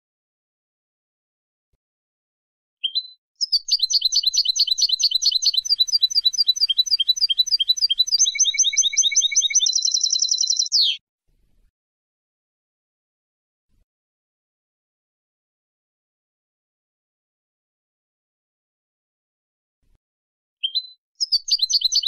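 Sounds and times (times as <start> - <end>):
goldfinch singing: 2.8 - 11.0, 20.6 - 22.0.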